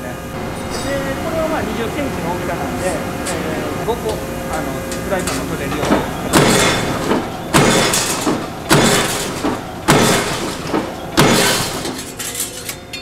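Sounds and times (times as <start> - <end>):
power press banging: 0.3 - 13.0
steel sheet knocking: 4.9 - 12.6.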